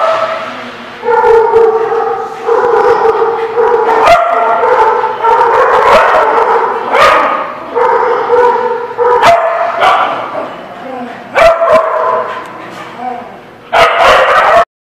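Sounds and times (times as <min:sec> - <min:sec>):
dogs barking and yapping: 0:00.0 - 0:14.7.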